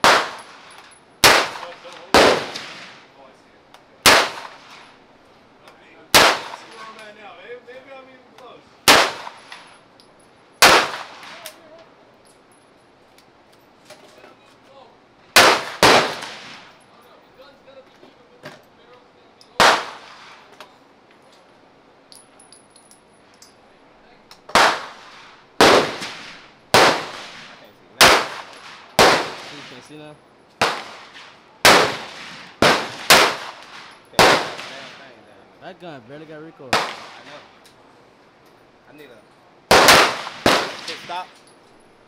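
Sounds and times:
gunshots: 0:00.0 - 0:03.1, 0:04.0 - 0:04.8, 0:06.1 - 0:06.8, 0:08.8 - 0:09.4, 0:10.6 - 0:11.5, 0:15.4 - 0:16.7, 0:19.6 - 0:20.5, 0:24.5 - 0:29.8, 0:30.6 - 0:35.1, 0:36.7 - 0:37.4, 0:39.7 - 0:41.3.

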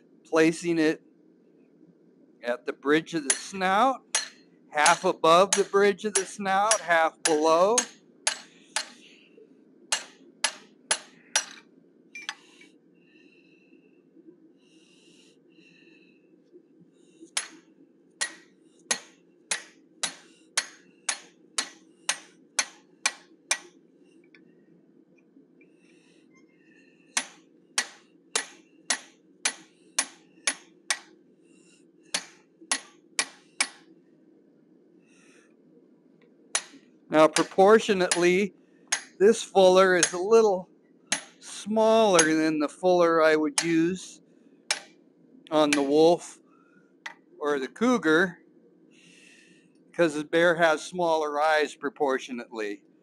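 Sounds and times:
steady low hum: 0:00.0 - 0:53.0
hammer striking hot steel: 0:03.2 - 0:09.0, 0:09.9 - 0:11.6, 0:17.4 - 0:17.6, 0:18.2 - 0:23.7, 0:27.1 - 0:31.1, 0:32.1 - 0:33.8, 0:36.6 - 0:40.4, 0:41.1 - 0:42.5, 0:44.7 - 0:44.9, 0:45.6 - 0:46.1.

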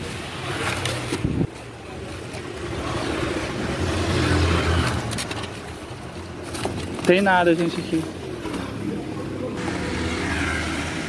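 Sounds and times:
plastic and cardboard rustling: 0:00.0 - 0:03.0, 0:04.6 - 0:09.1.

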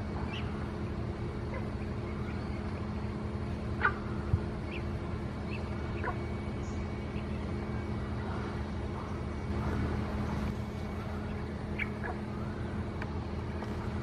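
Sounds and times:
steady low hum: 0:00.0 - 0:14.0
ducks giving whistled calls: 0:03.8 - 0:09.8, 0:11.0 - 0:12.7.

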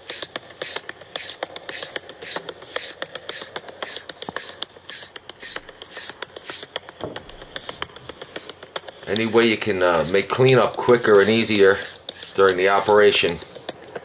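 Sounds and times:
small sharp ticks: 0:00.0 - 0:09.7
peeler scraping carrot: 0:00.0 - 0:14.0.

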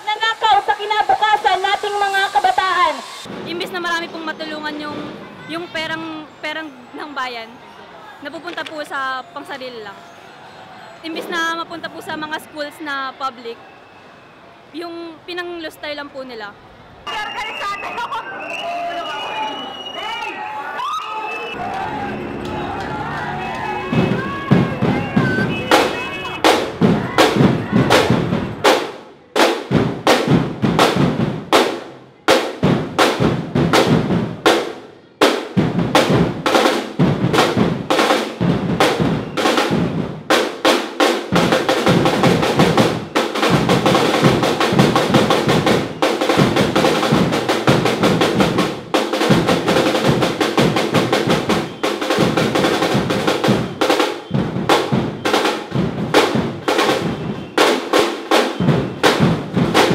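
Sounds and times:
people drumming and banging: 0:03.2 - 0:06.2, 0:21.5 - 0:59.9.

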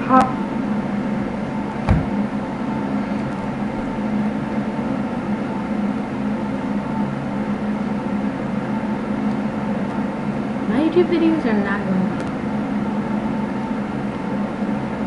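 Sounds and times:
steady low hum: 0:00.0 - 0:15.0
short thump: 0:01.8 - 0:02.2.

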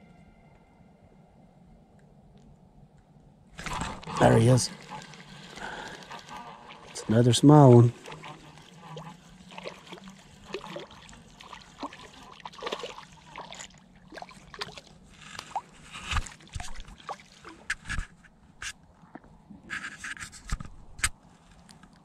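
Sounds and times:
fish splashing at surface: 0:03.6 - 0:18.0.

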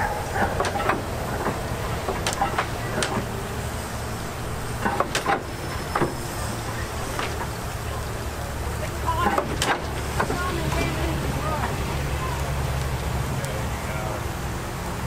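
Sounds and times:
engine low rumble: 0:00.0 - 0:15.0
sharp knocks and clicks: 0:00.4 - 0:03.3, 0:04.8 - 0:06.2, 0:09.2 - 0:10.9.

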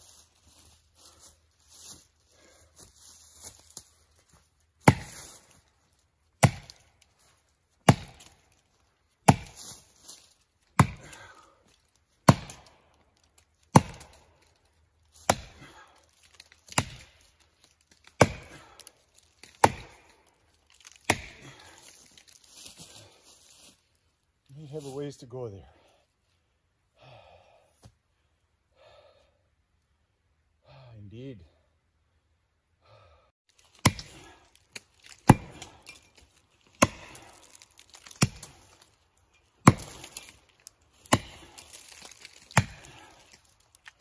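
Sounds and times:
footsteps in dry leaves: 0:00.0 - 0:10.7, 0:18.6 - 0:25.3, 0:33.5 - 0:44.0
axe chopping into tree trunk: 0:04.8 - 0:05.5, 0:06.4 - 0:06.9, 0:07.8 - 0:08.5, 0:09.2 - 0:09.8, 0:10.7 - 0:11.3, 0:12.2 - 0:12.9, 0:13.7 - 0:14.3, 0:15.2 - 0:22.2, 0:33.6 - 0:38.9, 0:39.6 - 0:44.0.

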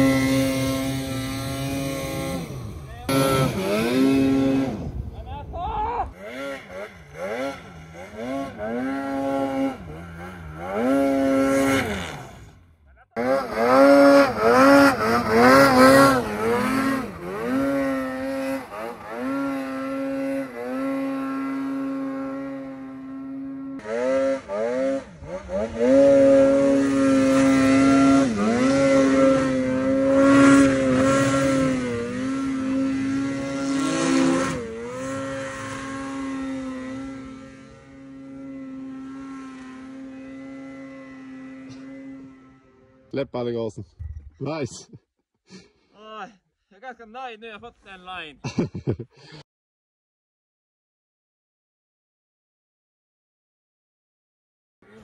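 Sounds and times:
snowmobile engine revving: 0:00.0 - 0:43.7.

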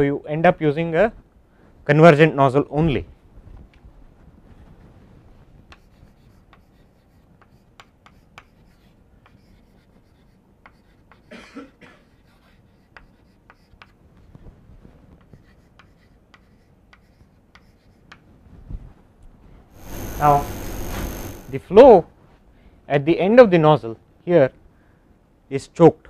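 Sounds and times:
chalk tapping and scratching on blackboard: 0:05.6 - 0:11.4, 0:12.0 - 0:14.4, 0:15.1 - 0:18.3
cough-like sound: 0:11.3 - 0:12.1.

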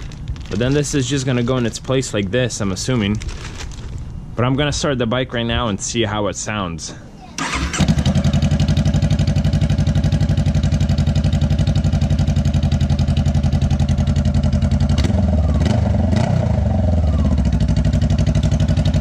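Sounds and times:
motorcycle engine idling: 0:07.4 - 0:19.0.

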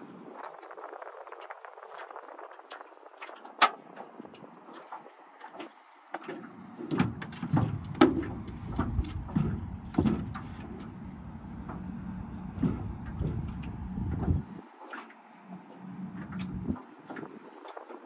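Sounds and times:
wind buffeting the microphone: 0:00.0 - 0:03.3, 0:07.1 - 0:14.7.

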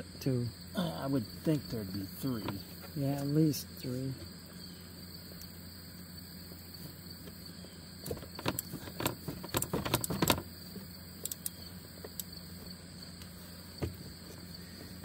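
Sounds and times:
crickets chirring: 0:00.0 - 0:15.0
ratchet wrench clicking: 0:11.2 - 0:11.6.

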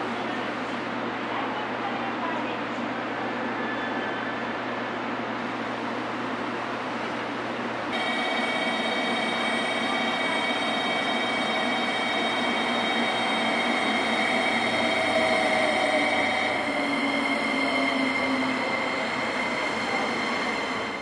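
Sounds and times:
electric train rumble: 0:03.4 - 0:21.0
high ringing tones: 0:07.9 - 0:19.6.

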